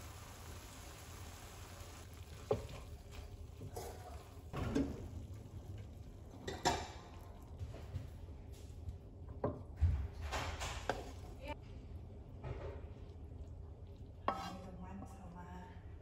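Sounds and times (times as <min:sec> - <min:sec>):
faint steady hiss: 0:00.0 - 0:03.3.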